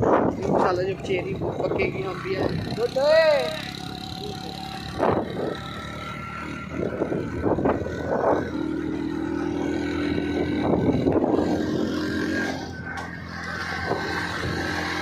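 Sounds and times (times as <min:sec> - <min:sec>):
wind noise on microphone: 0:00.0 - 0:02.9, 0:04.8 - 0:06.0, 0:06.6 - 0:12.8, 0:13.4 - 0:15.0
motorcycle engine running: 0:00.0 - 0:15.0.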